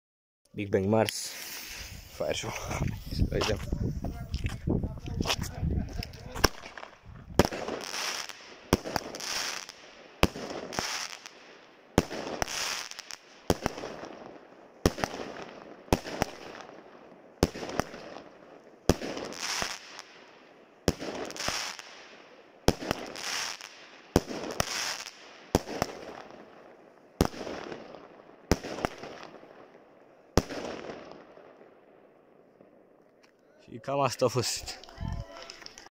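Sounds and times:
firework launch reports: 0:00.6 - 0:11.3, 0:33.6 - 0:35.9
firework shells bursting: 0:05.1 - 0:14.2.

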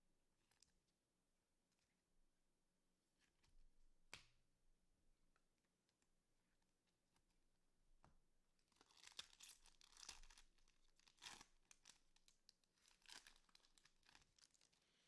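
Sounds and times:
wrapper crinkling and tearing: 0:08.7 - 0:14.8.

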